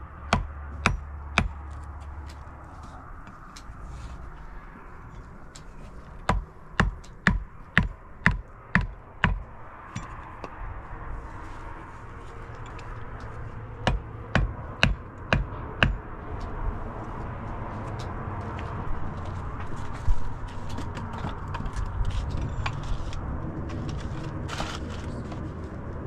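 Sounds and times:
stone hammering on metal hoe: 0.3s - 1.6s, 6.2s - 10.6s, 13.8s - 16.0s.

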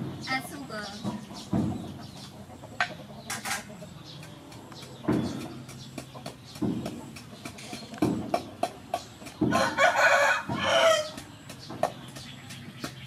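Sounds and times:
chickens clucking: 0.0s - 13.0s
pestle thudding in wooden mortar: 4.2s - 13.0s.

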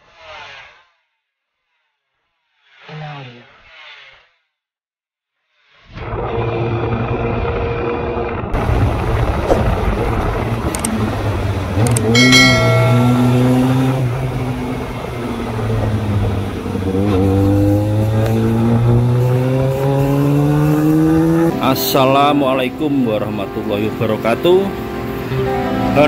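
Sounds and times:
motorcycle engine revving: 13.0s - 21.7s.

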